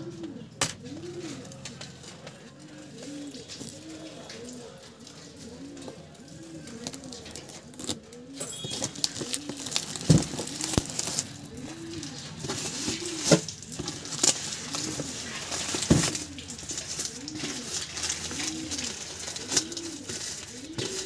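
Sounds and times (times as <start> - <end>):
pigeon cooing: 0.0 - 21.0
plastic shrink-wrap crinkling: 1.2 - 21.0
cardboard box handled: 7.8 - 11.3.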